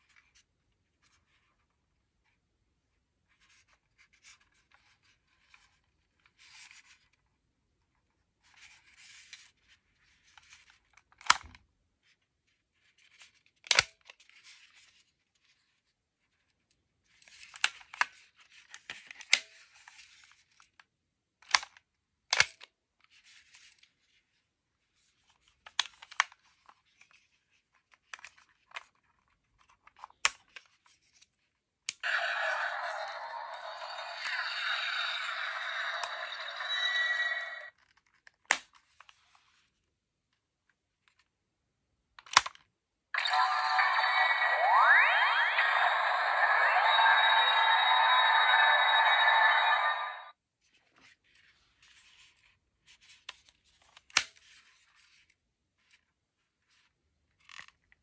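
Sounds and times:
thin electronic toy sound: 32.0s - 37.7s, 43.2s - 50.3s.

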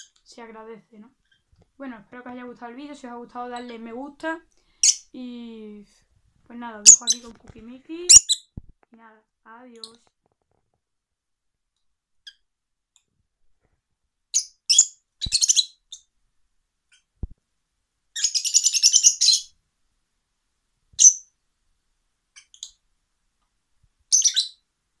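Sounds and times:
lovebirds chirping: 0.0s - 5.6s, 6.5s - 8.6s, 9.6s - 10.1s, 14.3s - 16.1s, 18.2s - 19.6s, 21.0s - 21.4s, 24.1s - 24.6s.

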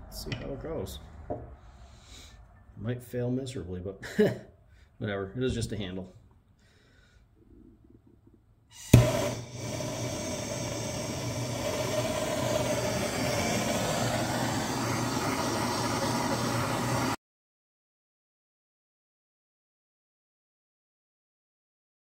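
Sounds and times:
gas torch lighting pop: 8.7s - 17.2s
gas torch rushing flame: 8.7s - 17.2s.

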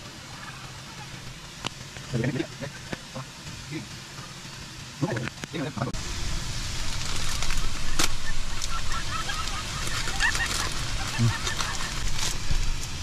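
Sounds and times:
waterfall rushing water: 5.6s - 13.0s.

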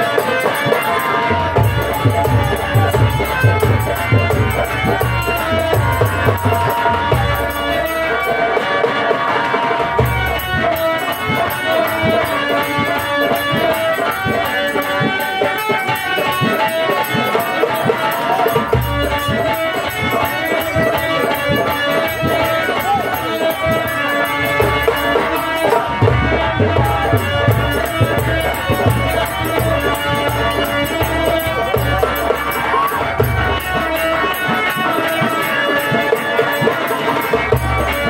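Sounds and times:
heavy hand-drum beat: 0.0s - 38.0s
held melody: 0.0s - 38.0s.

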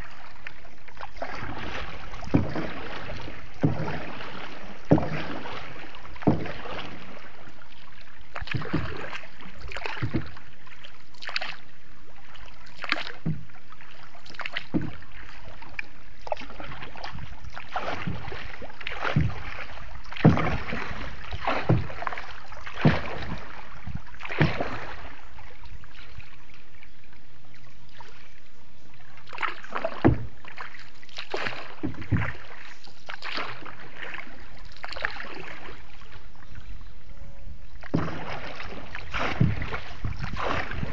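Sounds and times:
paddle splashing in water: 0.0s - 40.9s.

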